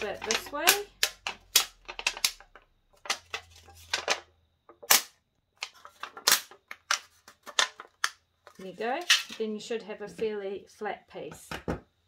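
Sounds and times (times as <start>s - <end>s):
thin metal sheet crackling and snapping: 4.8s - 5.1s.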